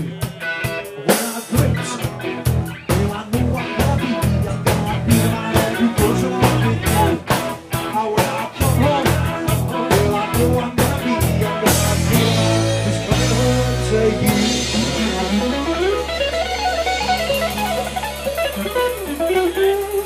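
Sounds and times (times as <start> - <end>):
man singing into microphone: 0.0 - 15.8
drum kit beating: 0.0 - 20.0
live rock band playing: 0.0 - 20.0.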